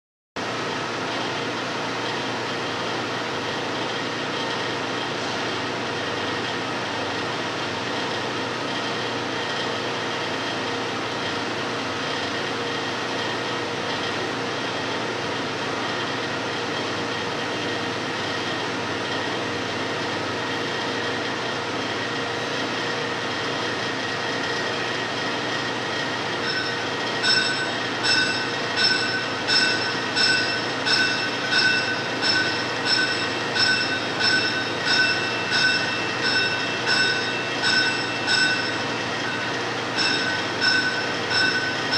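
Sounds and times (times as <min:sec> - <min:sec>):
rhythmic high-pitched ringing squeal: 0:24.3 - 0:41.9.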